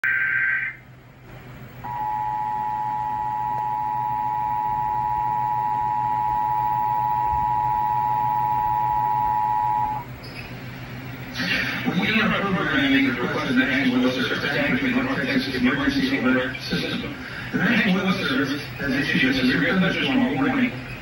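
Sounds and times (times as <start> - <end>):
two-tone alert tone: 1.8 - 10.1.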